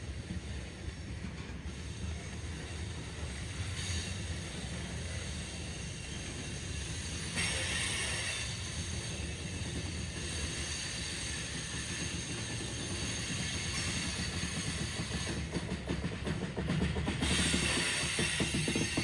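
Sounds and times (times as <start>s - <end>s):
train wheels rumbling on rails: 0.0s - 19.0s
burst of hiss: 3.7s - 9.2s, 17.2s - 19.0s.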